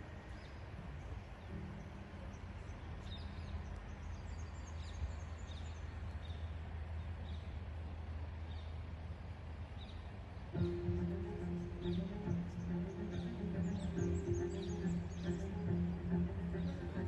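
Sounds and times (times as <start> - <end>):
small birds chirping: 0.0 - 17.0
steady low hum: 6.5 - 17.0.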